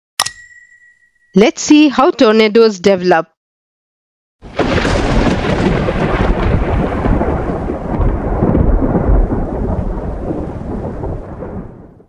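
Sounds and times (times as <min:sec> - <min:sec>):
thunder rumbling: 0:04.4 - 0:12.0.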